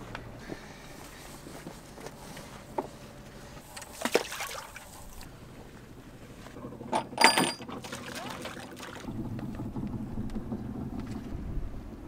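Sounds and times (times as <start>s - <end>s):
short metallic ring: 7.2s - 7.6s.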